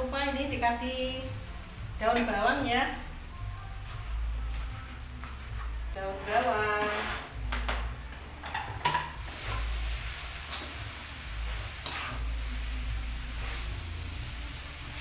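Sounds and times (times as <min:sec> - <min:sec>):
spatula scraping a wok: 0:04.0 - 0:07.5, 0:09.2 - 0:15.0.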